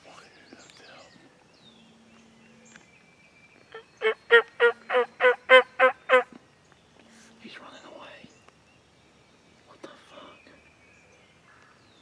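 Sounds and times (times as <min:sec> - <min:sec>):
turkey yelping: 0:04.0 - 0:06.3.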